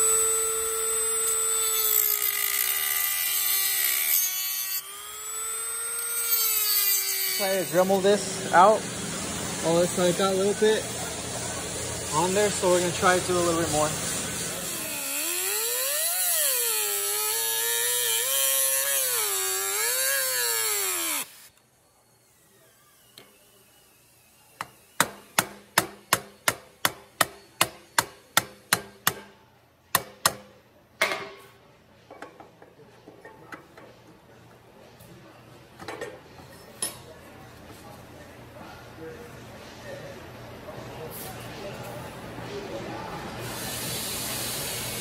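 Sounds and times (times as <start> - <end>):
rotary tool grinding steel: 0.0 - 8.3, 12.2 - 21.6
hammer tapping steel: 24.6 - 29.3, 29.9 - 31.4.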